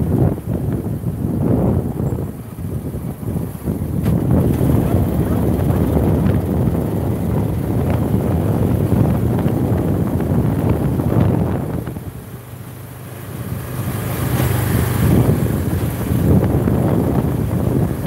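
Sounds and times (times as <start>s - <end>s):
motorcycle engine: 0.0s - 18.0s
road noise: 0.0s - 18.0s
wind buffeting microphone: 0.0s - 18.0s.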